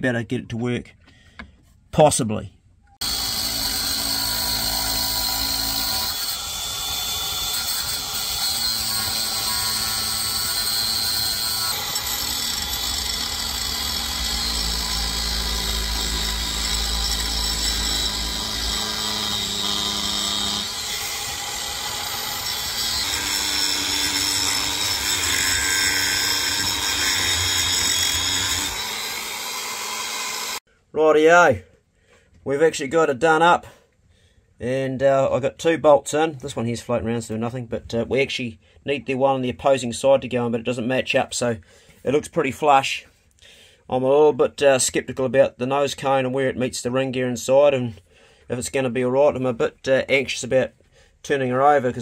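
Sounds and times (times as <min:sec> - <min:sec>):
angle grinder cutting metal: 0:03.0 - 0:30.6.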